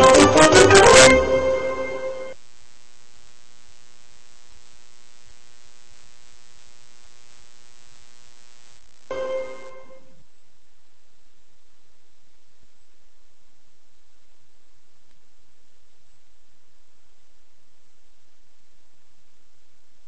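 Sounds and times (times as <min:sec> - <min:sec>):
orchestral music: 0:00.0 - 0:02.3
buzzy electrical hum: 0:01.6 - 0:20.0
faint hiss: 0:01.8 - 0:20.0.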